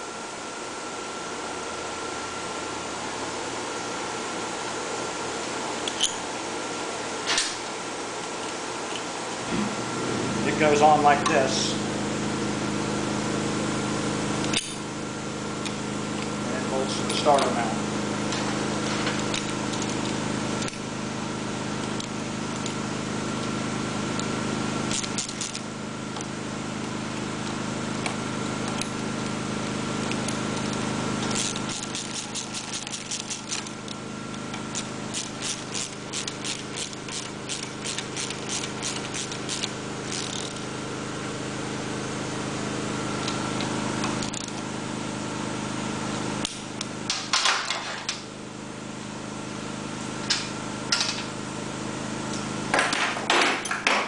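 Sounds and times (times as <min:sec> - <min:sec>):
steady background hum: 0:00.0 - 0:54.0
socket ratchet clicking: 0:31.2 - 0:33.7, 0:34.8 - 0:40.6
tools clattering on steel bench: 0:47.1 - 0:48.2.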